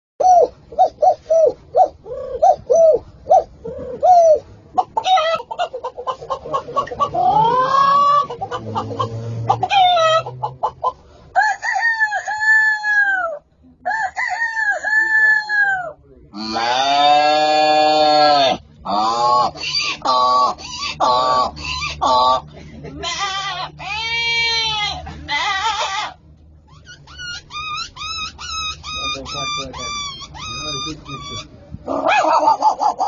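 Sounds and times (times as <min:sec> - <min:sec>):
man imitating chicken clucks: 0:03.6 - 0:10.9, 0:11.6 - 0:25.9, 0:28.9 - 0:33.0
man imitating rooster crows: 0:11.4 - 0:22.4.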